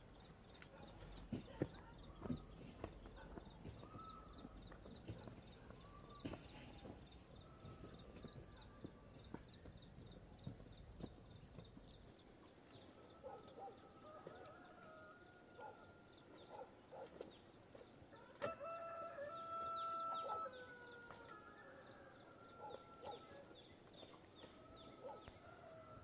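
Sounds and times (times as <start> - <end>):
rooster crowing: 14.0 - 15.8, 18.1 - 23.4.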